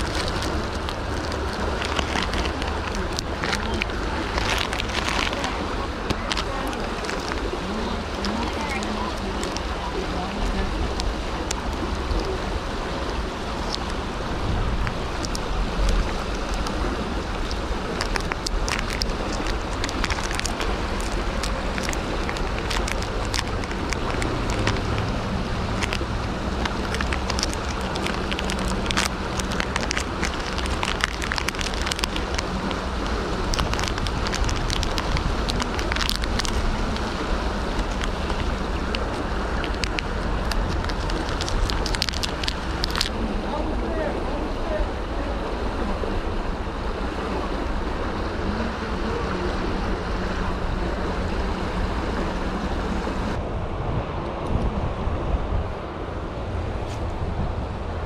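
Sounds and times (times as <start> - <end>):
plastic packet crackling in hands: 0.0 - 43.1
river water rushing over riffle: 0.0 - 58.0.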